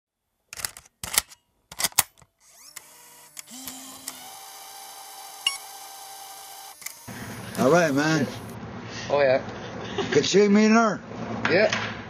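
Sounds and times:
camcorder handling clicks and clatter: 0.5 - 4.8
camcorder mechanism whirring: 2.0 - 8.6.

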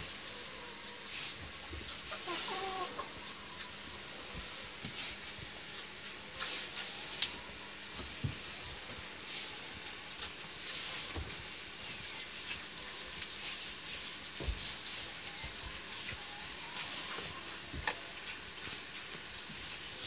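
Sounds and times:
straw rustling: 0.0 - 20.0
hoof steps on straw: 0.1 - 20.0.

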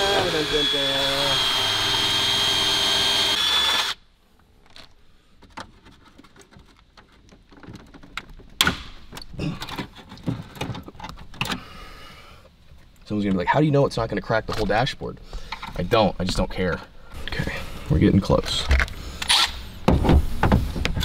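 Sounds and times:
rotary tool high whine: 0.0 - 4.0
plastic clicks and knocks: 4.6 - 11.6.

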